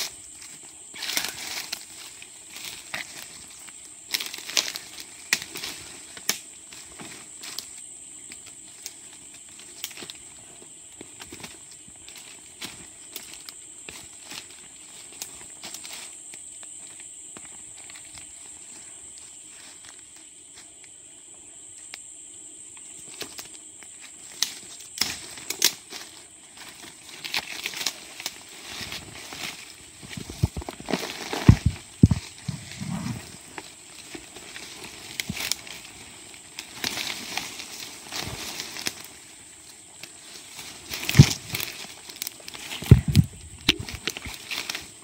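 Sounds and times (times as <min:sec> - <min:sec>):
twigs snapping: 0:04.1 - 0:07.7, 0:24.3 - 0:26.0, 0:26.6 - 0:39.2, 0:40.0 - 0:44.9
footsteps through dry leaves: 0:24.6 - 0:45.0.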